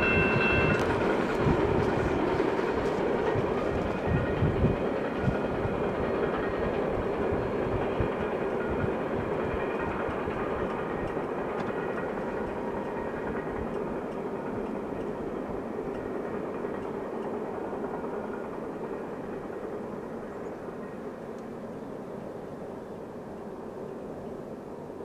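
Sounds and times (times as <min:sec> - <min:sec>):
train wheels rumbling on rail: 0:00.0 - 0:25.0
faint clicks: 0:21.3 - 0:21.6.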